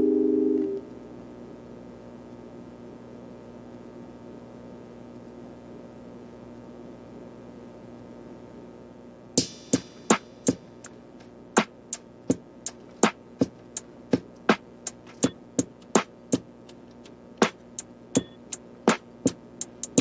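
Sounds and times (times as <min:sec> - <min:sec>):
faint steady hum: 0:00.0 - 0:20.0
sharp percussive clicks beat: 0:09.4 - 0:20.0.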